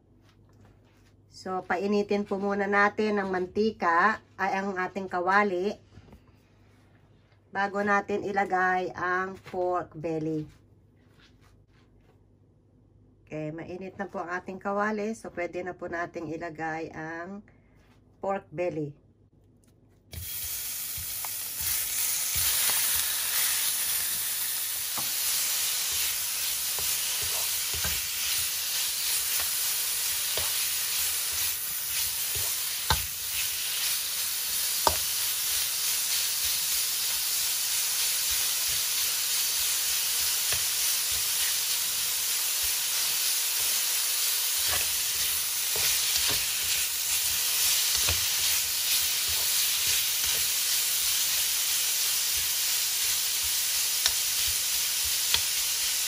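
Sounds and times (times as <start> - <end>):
meat sizzling in hot oil: 20.1 - 56.0.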